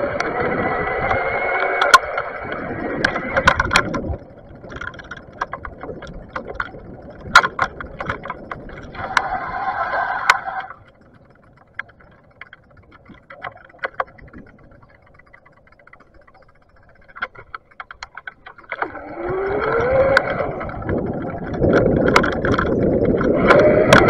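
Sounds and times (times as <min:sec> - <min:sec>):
electric bike motor whining: 0:00.0 - 0:04.6, 0:18.6 - 0:21.2, 0:23.1 - 0:24.0
bike clicks and rattles: 0:00.0 - 0:24.0.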